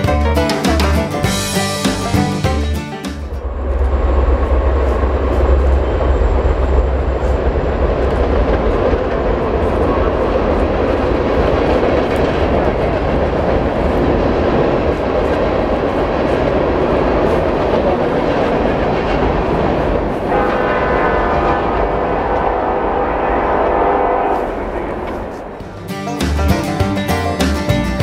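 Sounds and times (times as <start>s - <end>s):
locomotive deep rumble: 0.0s - 28.0s
train cars rolling rumble and clatter: 0.0s - 28.0s.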